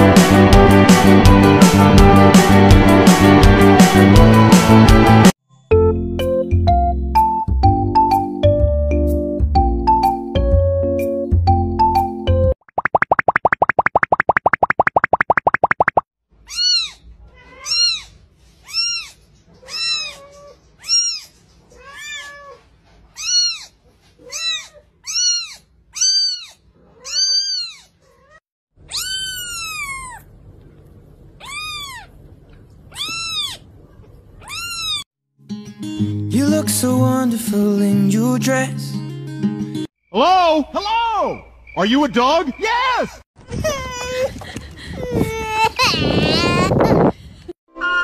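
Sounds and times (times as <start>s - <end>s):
kitten meowing: 16.5s - 18.1s, 18.7s - 21.3s, 23.2s - 23.7s, 24.3s - 27.9s, 28.9s - 30.3s, 31.4s - 32.1s, 32.9s - 33.6s, 34.4s - 35.0s.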